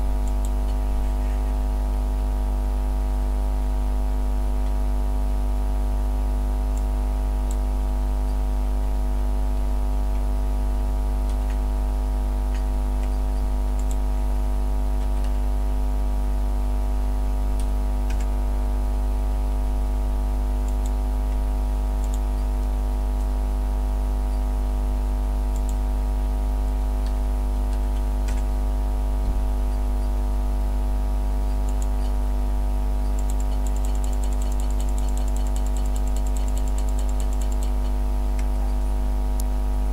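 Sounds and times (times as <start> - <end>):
fast light ticking: 33.0 - 38.8.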